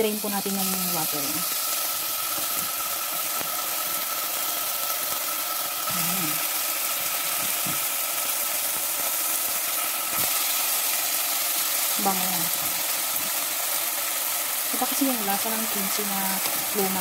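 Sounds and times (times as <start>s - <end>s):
food sizzling in oil: 0.0s - 17.0s.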